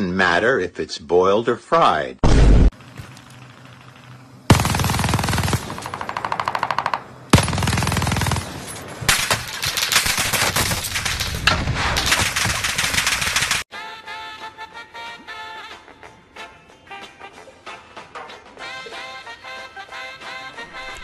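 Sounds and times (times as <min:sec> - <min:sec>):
video game automatic gunfire: 0:04.5 - 0:08.6, 0:09.8 - 0:13.7.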